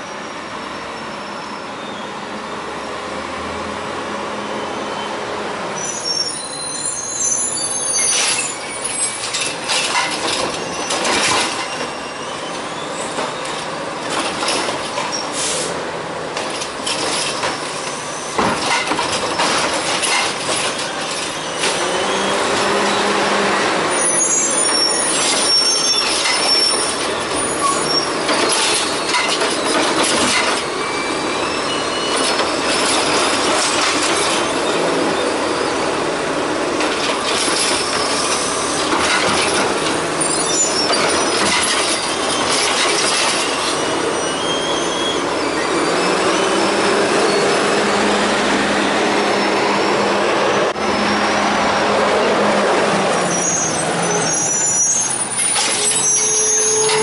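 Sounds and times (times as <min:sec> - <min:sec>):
high brake squeals: 0:00.0 - 0:02.3, 0:04.5 - 0:13.7, 0:14.9 - 0:15.8, 0:16.9 - 0:18.9, 0:20.0 - 0:23.3, 0:23.9 - 0:36.1, 0:37.2 - 0:48.2, 0:49.2 - 0:51.6, 0:53.2 - 0:57.0
hydraulic arm clanking and squeaking: 0:05.8 - 0:15.6, 0:16.4 - 0:23.1, 0:24.0 - 0:36.0, 0:36.8 - 0:48.0, 0:53.2 - 0:57.0
air brake hisses: 0:15.2 - 0:15.8.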